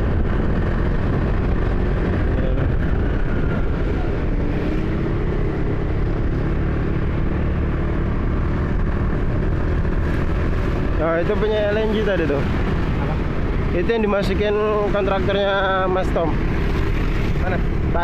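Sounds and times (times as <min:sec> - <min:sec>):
motorcycle engine running: 0:00.0 - 0:18.0
tyre noise on wet road: 0:08.9 - 0:18.0.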